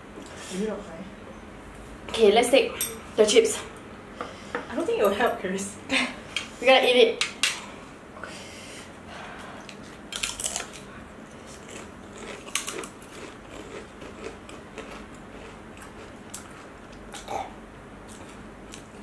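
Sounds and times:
potato chips crunching: 10.1 - 10.9, 11.5 - 17.3.

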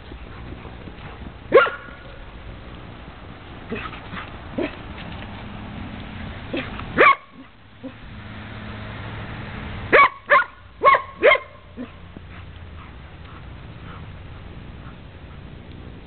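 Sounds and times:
dog barking: 1.5 - 2.0, 6.5 - 8.0, 9.9 - 12.0.

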